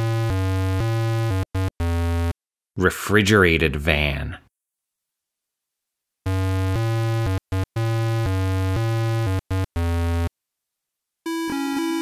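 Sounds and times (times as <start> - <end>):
eight-bit synthesizer tune: 0.0 - 2.4, 6.3 - 10.3, 11.3 - 12.0.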